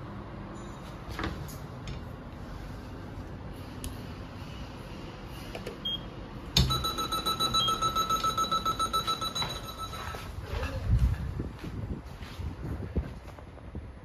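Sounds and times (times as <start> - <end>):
alarm bell ringing: 6.6 - 10.3.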